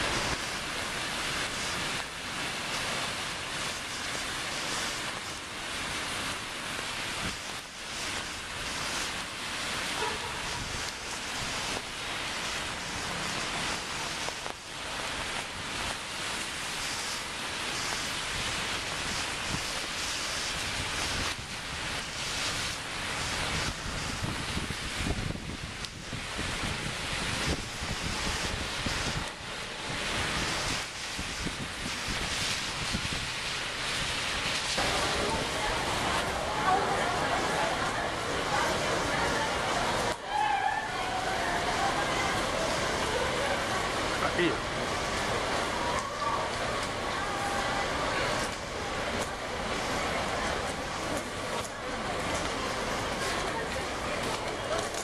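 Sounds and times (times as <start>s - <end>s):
steady outdoor rushing noise: 0.0s - 55.0s
street ambience: 0.0s - 55.0s
wind buffeting microphone: 17.8s - 36.8s.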